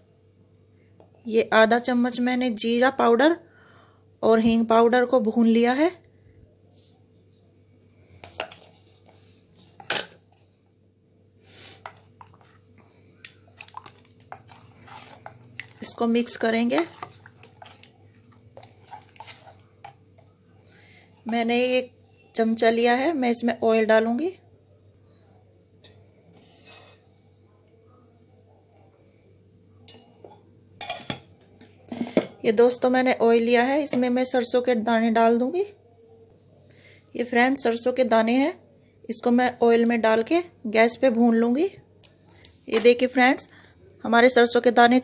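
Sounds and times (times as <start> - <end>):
spoon knocking and scraping steel bowl: 25.8 - 27.0.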